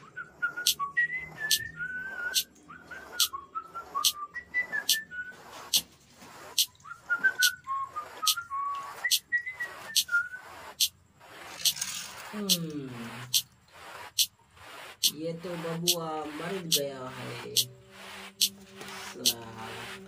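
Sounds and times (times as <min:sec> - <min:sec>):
high-pitched chirping: 0:00.0 - 0:20.0.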